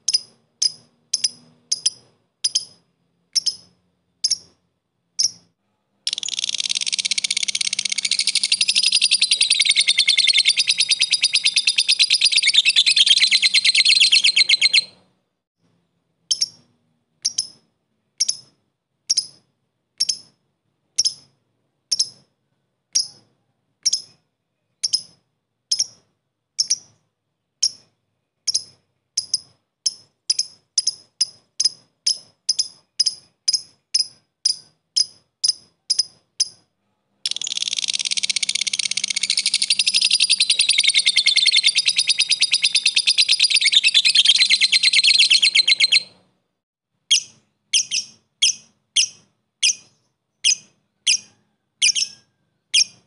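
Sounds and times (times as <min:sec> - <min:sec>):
lovebird chattering trill: 0:00.0 - 0:04.6, 0:05.2 - 0:05.5, 0:06.1 - 0:15.0, 0:16.3 - 0:17.6, 0:24.8 - 0:26.0, 0:26.6 - 0:26.9, 0:27.6 - 0:36.6, 0:37.3 - 0:46.2, 0:47.1 - 0:53.0
lovebird chirping: 0:00.0 - 0:15.1, 0:16.3 - 0:20.4, 0:21.0 - 0:22.3, 0:22.9 - 0:46.2, 0:47.1 - 0:53.0.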